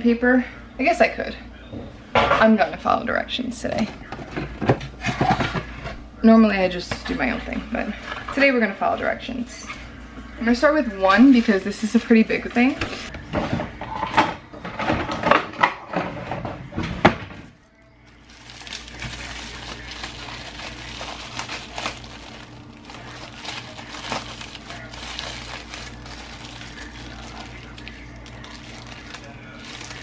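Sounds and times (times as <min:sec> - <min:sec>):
kitchen items clattering: 0:03.6 - 0:06.0, 0:10.5 - 0:17.6, 0:18.3 - 0:30.0
plastic bag crinkling: 0:18.1 - 0:30.0.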